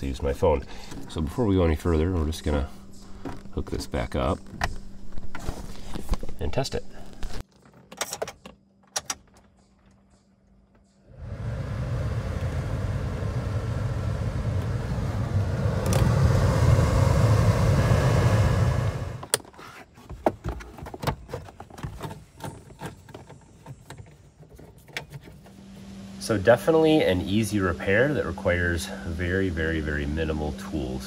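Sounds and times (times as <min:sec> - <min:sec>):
blower motor rushing air: 0:11.1 - 0:19.3, 0:25.6 - 0:31.0.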